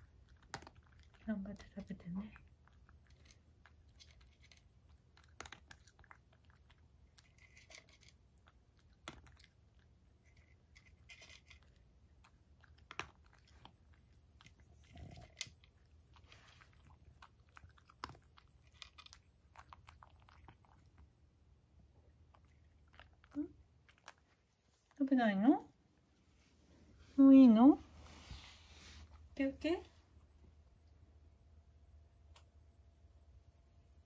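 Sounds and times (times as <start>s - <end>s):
cat crunching dry kibble: 0.0s - 25.0s.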